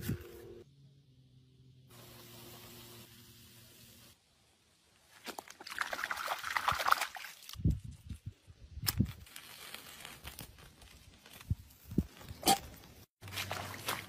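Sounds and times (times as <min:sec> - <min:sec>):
water sloshing and splashing: 0:05.2 - 0:07.6, 0:13.2 - 0:14.0.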